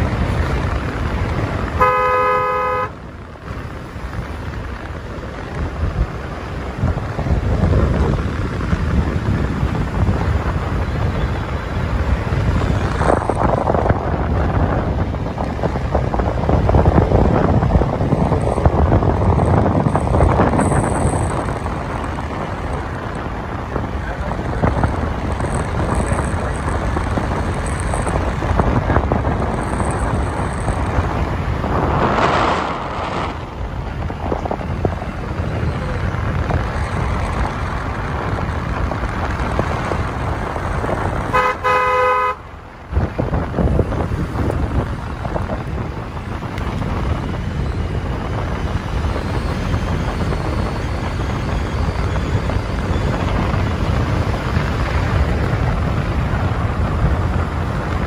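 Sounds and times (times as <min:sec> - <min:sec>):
wind and road noise: 0:00.0 - 0:58.0
vehicle horn: 0:01.7 - 0:03.1, 0:41.3 - 0:42.5.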